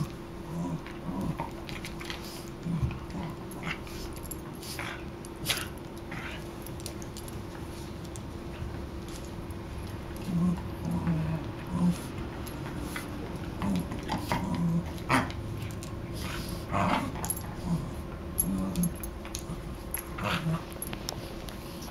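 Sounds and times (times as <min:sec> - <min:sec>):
dogs growling: 0:00.0 - 0:07.0, 0:09.8 - 0:20.9
dog snuffs and mouth snaps: 0:05.4 - 0:05.7.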